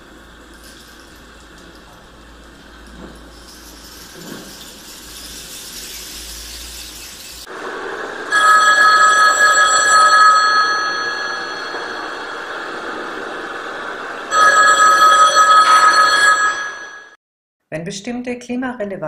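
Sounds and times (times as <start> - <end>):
bell-like ring: 8.3 - 12.8, 14.3 - 17.2.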